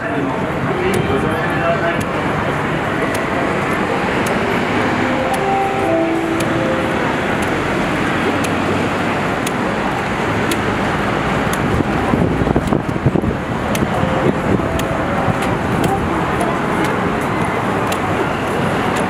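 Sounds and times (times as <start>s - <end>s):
busy city street traffic: 0.0s - 19.0s
sharp faint ticks: 5.0s - 8.6s.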